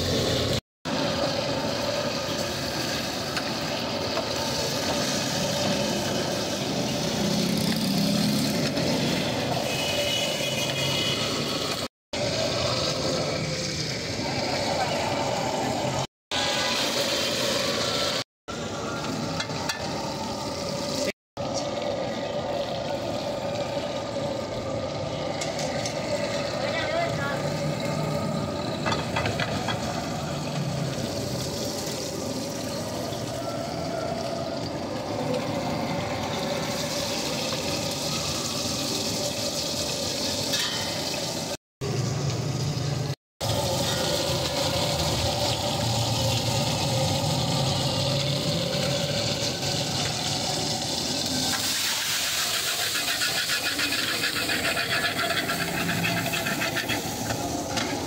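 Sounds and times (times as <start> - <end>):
vegetables sizzling in oil: 0.0 - 21.7, 25.6 - 58.0
gas burner rushing: 43.4 - 58.0.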